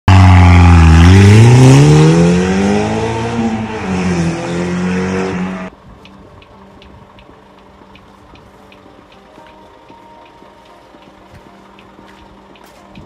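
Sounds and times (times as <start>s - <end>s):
car engine revving hard: 0.1s - 5.7s.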